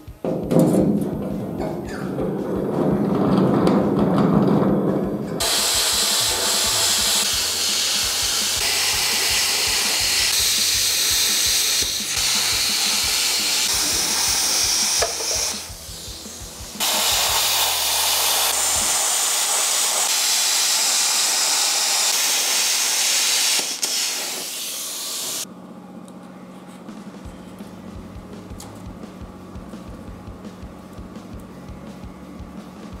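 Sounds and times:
plasma cutter hissing: 5.4 - 25.4.

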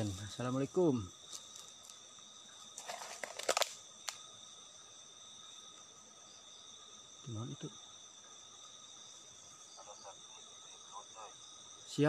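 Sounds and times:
night insects chirring: 0.0 - 12.0
clicks and rustles: 2.8 - 4.2.

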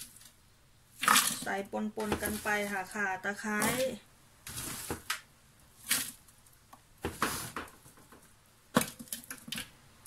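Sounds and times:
herbs clattering into plastic bowl: 1.0 - 5.2.

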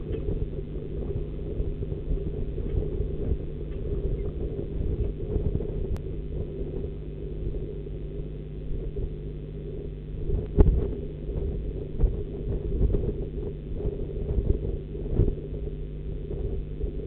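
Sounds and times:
low rumble and hum: 0.0 - 17.0.

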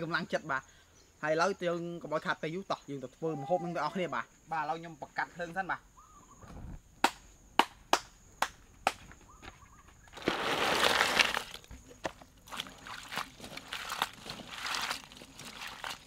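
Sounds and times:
charcoal fire popping: 10.1 - 16.0
water sloshing in a bowl: 10.2 - 16.0.

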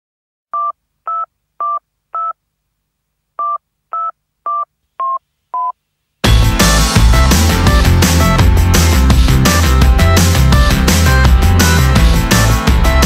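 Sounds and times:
telephone keypad beeps: 0.6 - 2.4, 3.4 - 5.7.

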